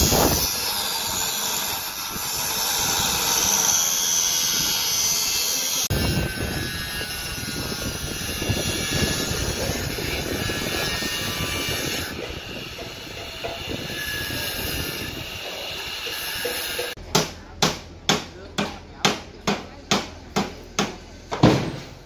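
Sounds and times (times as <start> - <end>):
angle grinder grinding steel: 0.0 - 17.0
hammer blows on metal: 0.0 - 21.9.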